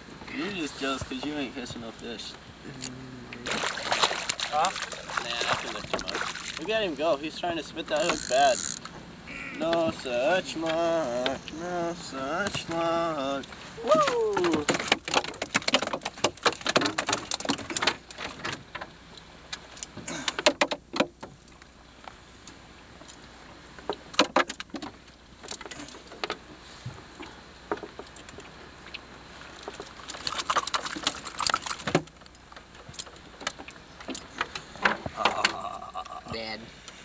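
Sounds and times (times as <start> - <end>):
fish knocking in plastic cooler: 14.3 - 18.5, 20.1 - 21.4.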